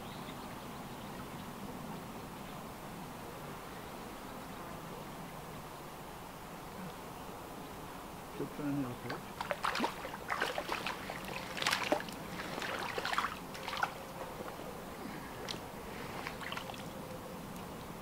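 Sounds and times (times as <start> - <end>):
water dripping: 9.1 - 14.6
fish splashing in water: 9.2 - 14.6, 16.2 - 16.9.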